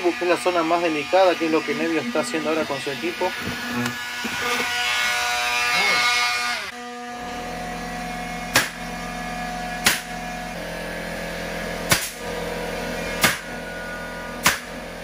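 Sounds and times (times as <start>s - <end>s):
cordless drill running: 0.0s - 15.0s
steady hum: 0.0s - 15.0s
nail gun firing into plywood: 8.5s - 8.8s, 9.8s - 10.2s, 11.9s - 12.2s, 13.2s - 13.5s, 14.4s - 14.8s.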